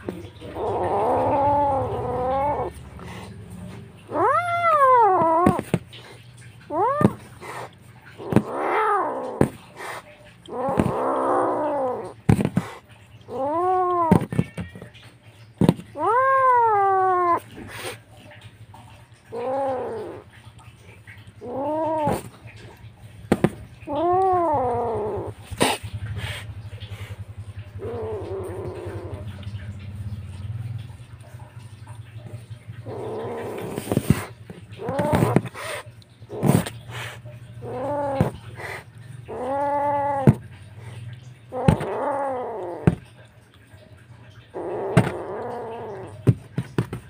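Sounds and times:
kitten meowing: 0.0s - 2.8s, 4.0s - 5.8s, 6.4s - 7.4s, 10.4s - 12.3s, 13.2s - 15.0s, 15.6s - 17.6s, 19.3s - 20.3s, 21.4s - 22.7s, 23.5s - 25.4s, 27.7s - 29.7s, 31.8s - 40.5s, 41.5s - 43.1s, 44.5s - 46.9s.

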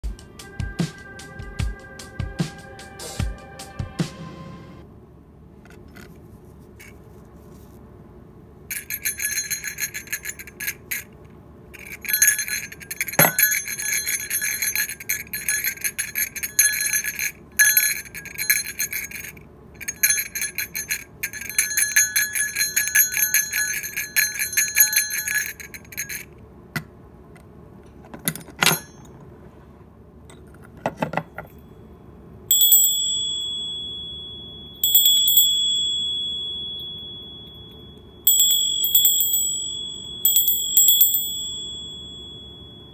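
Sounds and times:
jingle bell shaken rapidly: 8.7s - 11.1s, 11.8s - 26.2s
small brass bell ringing: 8.7s - 11.1s, 11.8s - 26.3s, 28.6s - 29.1s, 31.5s - 42.9s.

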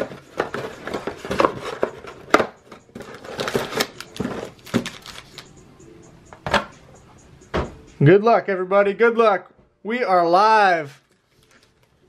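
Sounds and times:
packaging crinkling and tearing: 3.0s - 5.5s, 11.1s - 12.0s.

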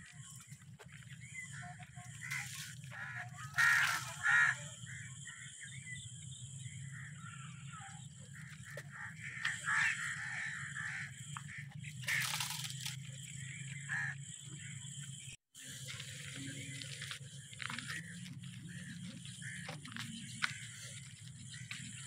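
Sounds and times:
small birds chirping: 0.0s - 22.0s
crows cawing: 1.5s - 5.6s, 8.3s - 12.7s, 13.4s - 14.7s, 17.6s - 22.0s.

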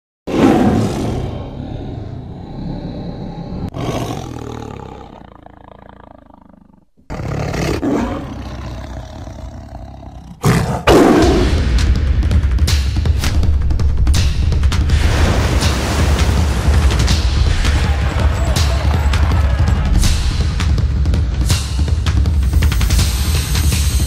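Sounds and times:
tiger roaring: 0.3s - 11.6s.

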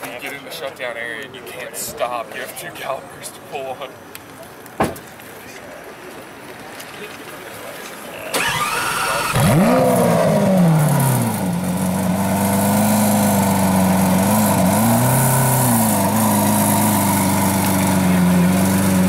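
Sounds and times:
sports car engine starting and idling: 8.2s - 19.0s.

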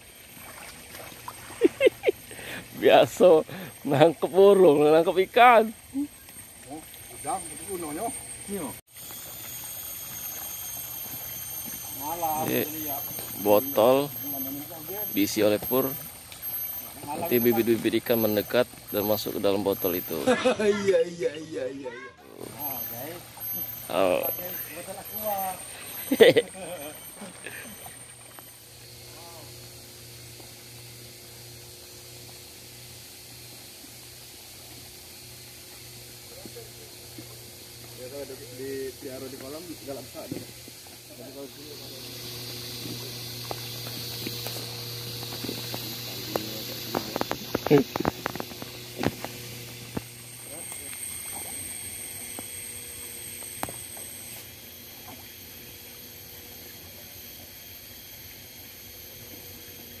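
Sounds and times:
net stirring pond water: 0.0s - 20.5s, 22.2s - 29.2s, 42.0s - 57.0s
low hum: 0.0s - 60.0s
steady hiss: 6.7s - 21.7s, 22.4s - 54.7s.

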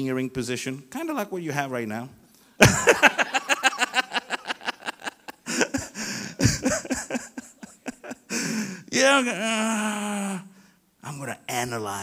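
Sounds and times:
man laughing into microphone: 2.6s - 8.3s.

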